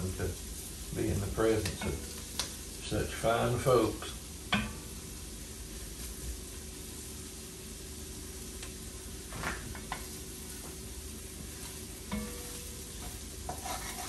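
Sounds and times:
food sizzling in pot: 0:00.0 - 0:14.0
utensil scraping and knocking pot: 0:12.1 - 0:14.0.

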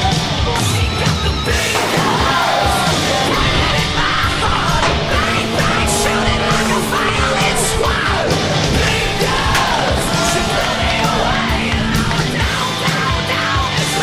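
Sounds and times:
driving drum beat: 0:00.0 - 0:14.0
heavy rock music: 0:00.0 - 0:14.0
yelled vocals: 0:00.0 - 0:14.0.

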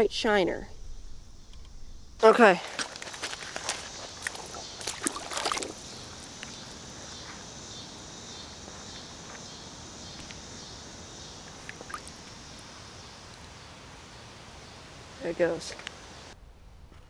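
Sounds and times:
water running in creek: 0:02.2 - 0:08.1, 0:09.6 - 0:16.4.

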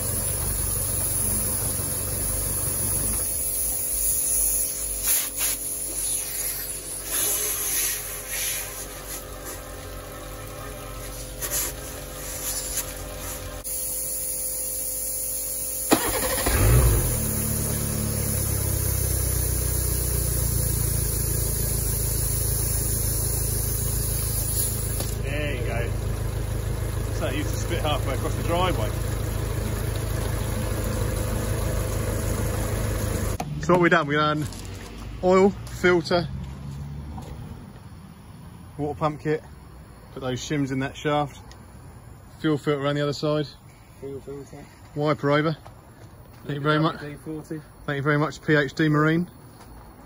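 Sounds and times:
compressed air blasts hissing: 0:00.0 - 0:10.0, 0:10.9 - 0:25.3
engine cranking: 0:15.8 - 0:20.3
starter clicking: 0:15.9 - 0:17.1
outboard engine running: 0:24.8 - 0:33.4.

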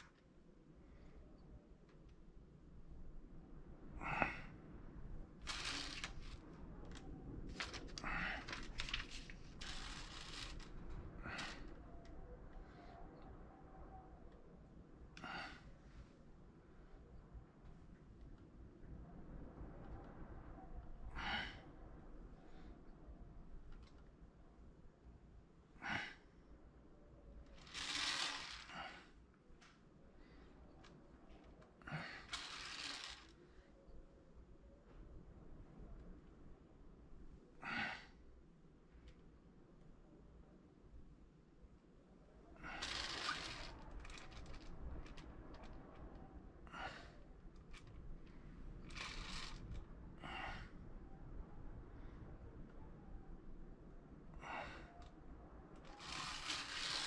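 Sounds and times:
small clicks: 0:27.5 - 0:28.7, 0:30.8 - 0:33.4, 0:42.8 - 0:46.2.

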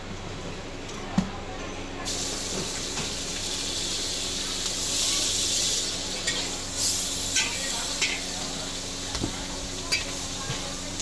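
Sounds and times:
eggs sizzling in hot oil: 0:02.1 - 0:10.4.

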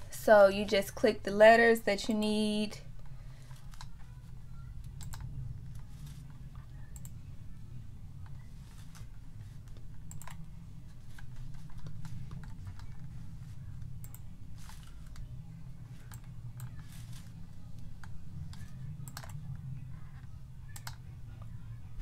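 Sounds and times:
steady low hum: 0:00.0 - 0:22.0
computer mouse clicks: 0:04.9 - 0:05.9, 0:06.9 - 0:07.2, 0:08.2 - 0:10.5, 0:14.0 - 0:15.3, 0:18.0 - 0:19.4, 0:20.7 - 0:21.0.

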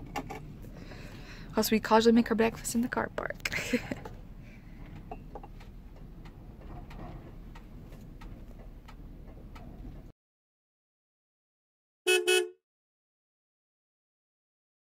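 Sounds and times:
low steady rumble: 0:00.0 - 0:10.1.

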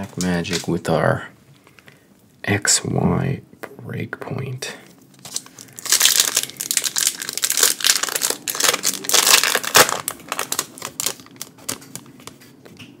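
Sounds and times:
foil wrapper crinkling: 0:05.1 - 0:12.6.

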